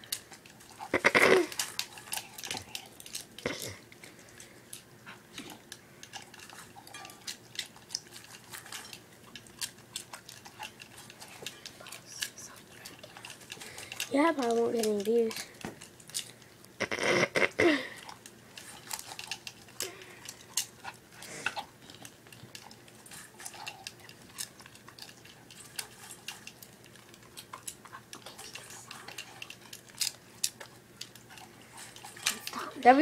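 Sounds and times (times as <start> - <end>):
dog crunching food in metal bowl: 0.0 - 33.0.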